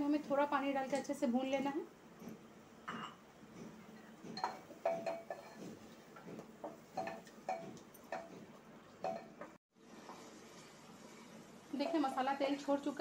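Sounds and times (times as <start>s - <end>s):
wooden spoon knocking on metal pot: 4.3s - 9.6s.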